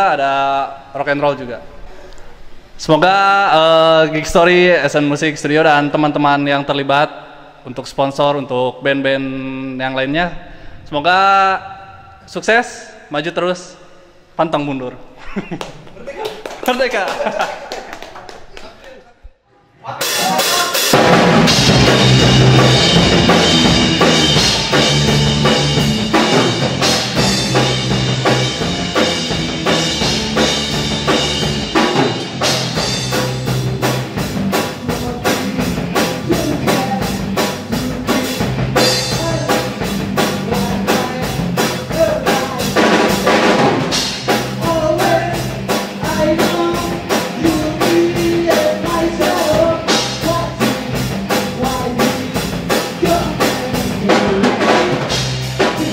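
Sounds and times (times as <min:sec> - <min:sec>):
drum kit beat: 0:20.0 - 0:55.9
electric guitar: 0:20.0 - 0:55.9
electric bass: 0:20.9 - 0:55.9
man singing: 0:33.6 - 0:43.4, 0:44.4 - 0:55.9.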